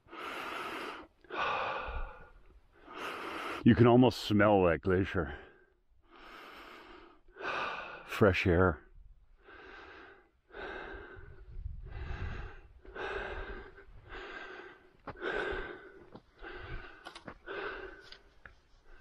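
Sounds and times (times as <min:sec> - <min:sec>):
person breathing hard: 0:00.0 - 0:03.6, 0:05.4 - 0:08.1, 0:09.3 - 0:19.0
low wind rumble: 0:08.9 - 0:15.7
sharp clicks: 0:17.0 - 0:17.4.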